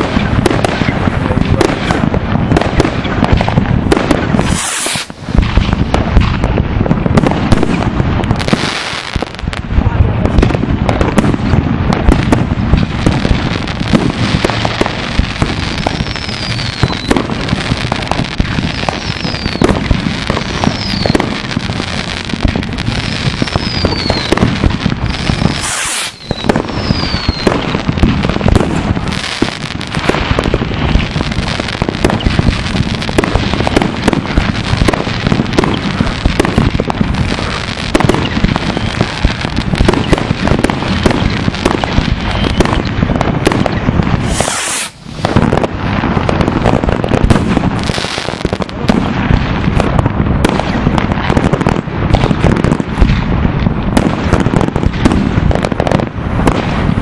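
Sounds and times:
fireworks bangs and crackles: 0:00.0 - 0:57.0
falling firework whistles: 0:04.2 - 0:05.2, 0:15.8 - 0:18.0, 0:18.7 - 0:21.6, 0:22.9 - 0:24.5, 0:25.1 - 0:29.6, 0:31.3 - 0:33.8, 0:37.4 - 0:38.6, 0:39.8 - 0:45.6.

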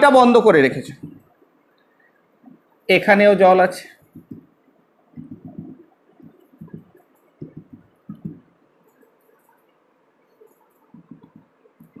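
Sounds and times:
marker rubbing on whiteboard: 0:00.9 - 0:01.3, 0:04.0 - 0:04.5, 0:05.2 - 0:09.7, 0:10.3 - 0:12.0.

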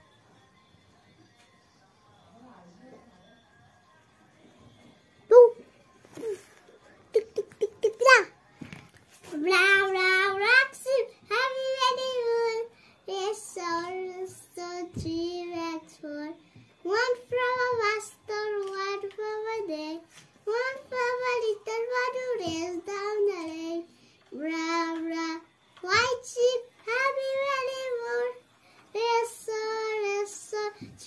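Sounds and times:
boy singing unaccompanied: 0:09.2 - 0:31.0.

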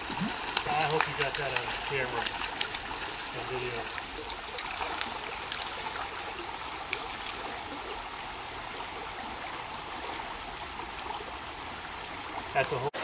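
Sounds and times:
fish splashing at surface: 0:00.0 - 0:07.8
creek water running over riffle: 0:00.0 - 0:13.0.

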